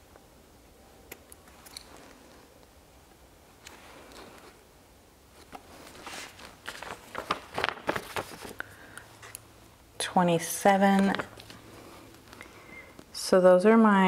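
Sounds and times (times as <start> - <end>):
paper stickers rustling: 5.4 - 9.4.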